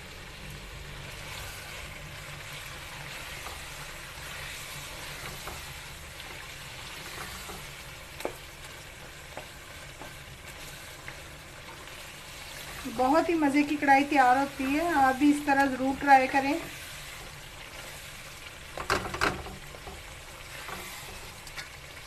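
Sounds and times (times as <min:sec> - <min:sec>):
food sizzling in oil: 0:00.0 - 0:22.0
spatula tapping the pan: 0:18.7 - 0:20.1.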